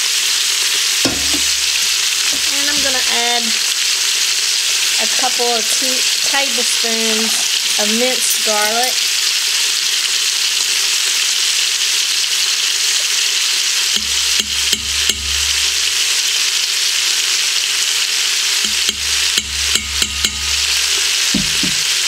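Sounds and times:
chicken and onion sizzling in oil: 0.0 - 22.0
spoon knocking on pot: 1.1 - 3.1, 14.0 - 15.7, 18.7 - 22.0.

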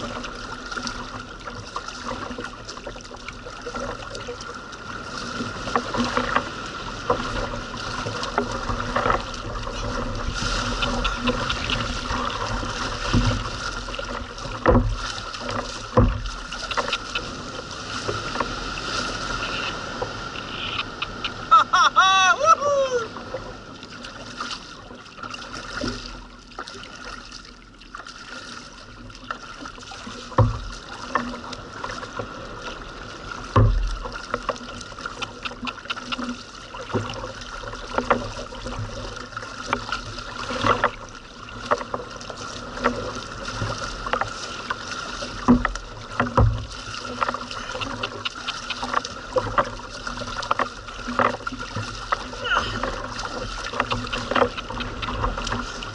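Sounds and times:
paddle splashing in water: 0.0 - 55.9
water lapping against hull: 0.0 - 55.9.

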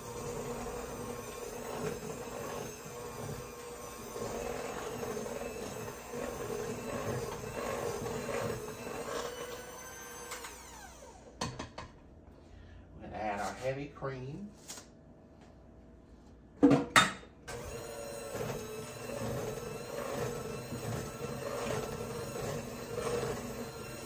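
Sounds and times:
electric hand mixer running: 0.0 - 11.6, 17.5 - 24.0.

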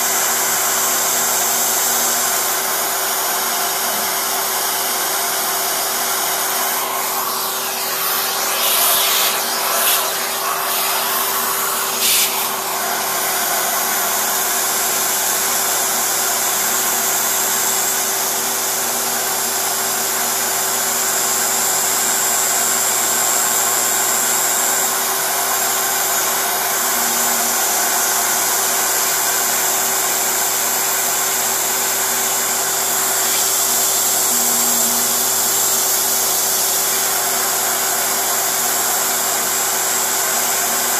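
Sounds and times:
milling spindle whining: 6.5 - 13.2.

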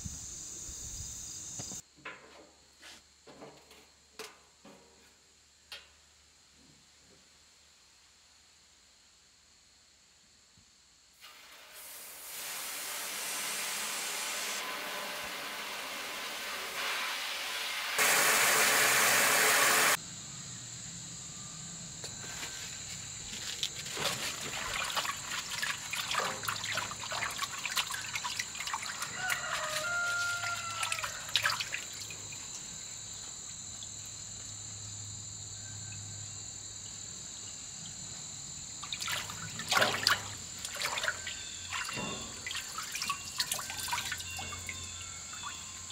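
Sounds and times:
hands splashing greens in water: 23.9 - 32.1
tap water running into sink: 24.4 - 32.3.

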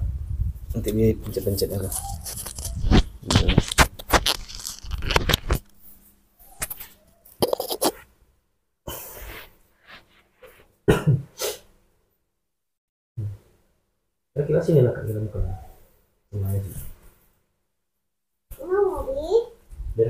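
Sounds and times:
plastic packet crinkling and crunching: 1.6 - 5.7.

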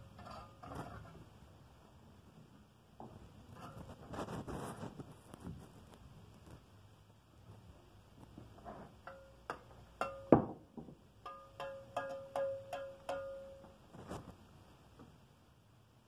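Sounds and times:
trowel blade ringing: 9.1 - 10.4, 11.2 - 13.8
trowel knocking on brick: 11.2 - 13.7.

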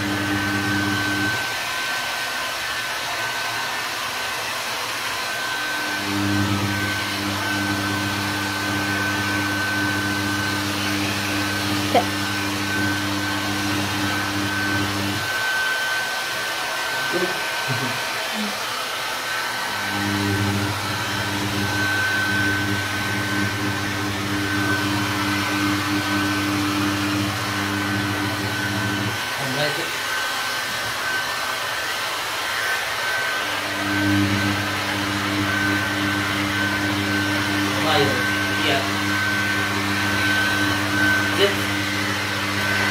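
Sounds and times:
hair dryer blowing: 0.0 - 42.9.

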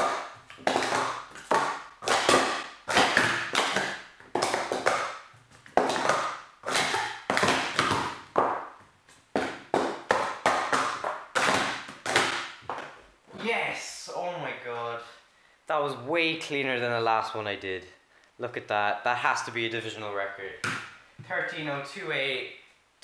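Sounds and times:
plastic cups clattering and tapping: 0.0 - 13.0.

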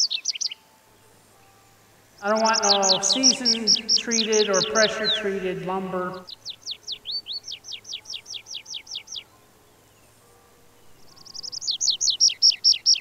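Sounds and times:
songbird whistling: 0.0 - 0.6, 11.2 - 13.0.

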